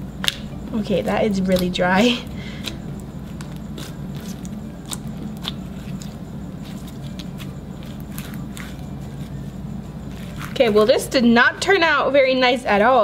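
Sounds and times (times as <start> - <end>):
slime crackling and popping: 2.6 - 8.8.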